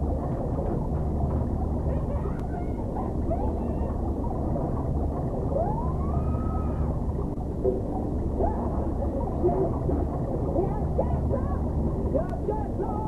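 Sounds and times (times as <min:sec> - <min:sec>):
steady low rumble: 0:00.0 - 0:13.0
boy yelling underwater effect: 0:01.9 - 0:04.0, 0:05.6 - 0:06.9, 0:08.4 - 0:09.7, 0:10.6 - 0:13.0.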